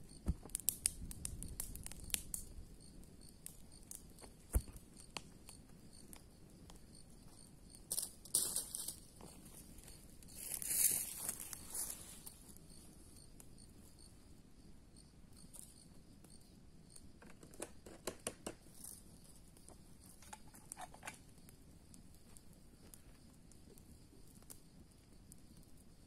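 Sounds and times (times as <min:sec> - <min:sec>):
sharp snaps of fire: 0:00.0 - 0:09.1, 0:15.4 - 0:26.0
wood fire crackling: 0:00.0 - 0:14.2, 0:15.1 - 0:26.0.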